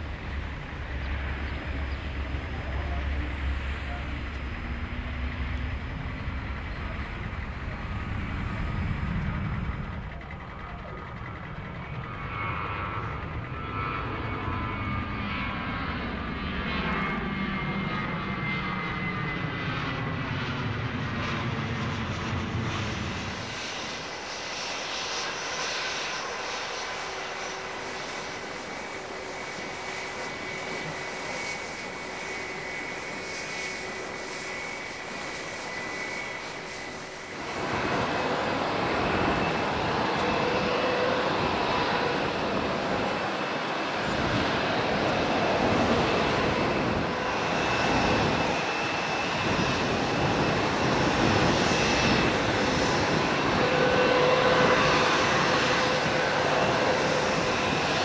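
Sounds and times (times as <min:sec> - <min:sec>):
low engine rumble: 0:00.0 - 0:13.6
jet engine turbine whine: 0:00.0 - 0:58.0.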